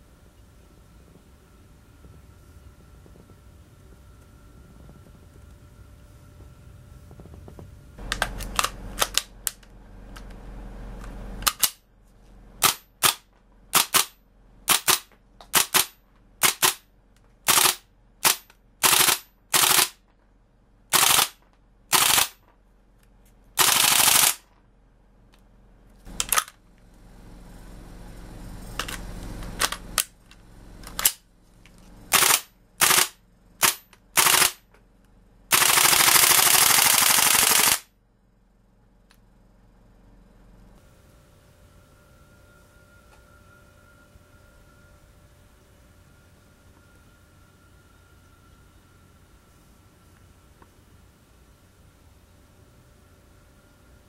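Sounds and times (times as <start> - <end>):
airsoft gun shots: 12.6 - 16.8, 20.9 - 22.4.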